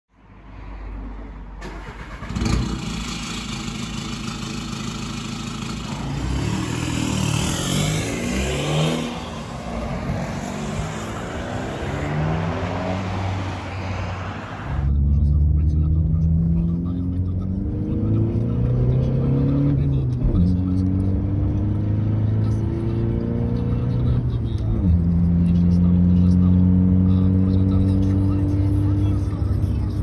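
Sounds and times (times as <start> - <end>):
diesel car engine revving: 1.6 - 30.0.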